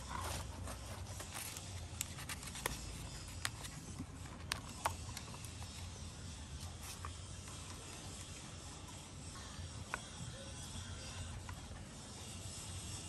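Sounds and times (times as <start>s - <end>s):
plastic rustling and scraping: 0.0s - 5.9s.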